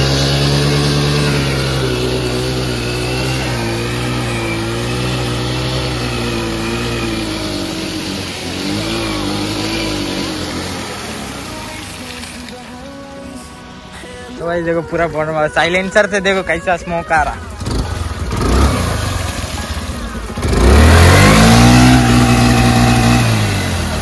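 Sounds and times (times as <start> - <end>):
wheel spinning in mud: 0.0 - 12.8, 17.1 - 24.0
scooter engine revving: 0.0 - 12.9, 13.8 - 24.0.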